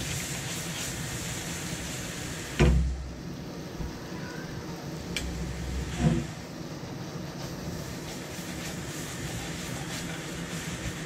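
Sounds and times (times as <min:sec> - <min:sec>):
prawns sizzling in a frying pan: 0:00.0 - 0:02.9, 0:07.3 - 0:11.0.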